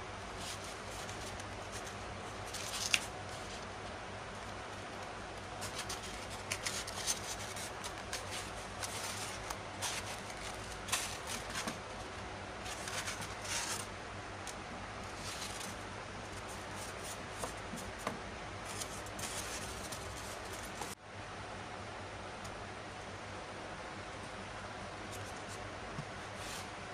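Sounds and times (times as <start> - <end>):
steady low hum: 0.0 - 26.9
foam sheets rubbing: 0.3 - 3.7, 4.4 - 13.9, 15.0 - 21.0, 26.2 - 26.8.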